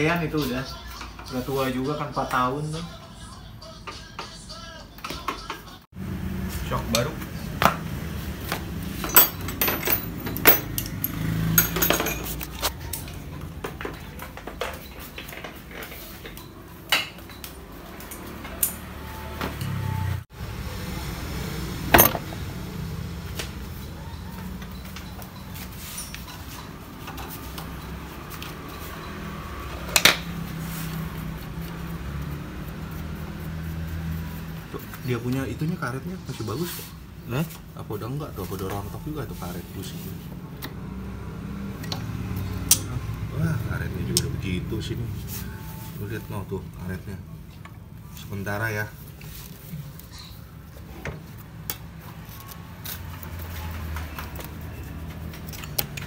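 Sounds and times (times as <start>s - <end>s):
metal-on-metal clinks: 8.9s - 12.7s.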